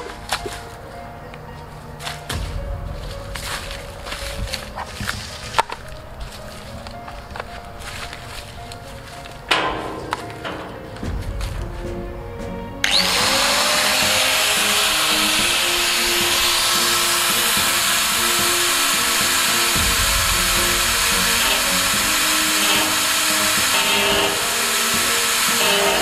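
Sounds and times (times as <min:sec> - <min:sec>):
angle grinder cutting metal: 0:12.8 - 0:26.0.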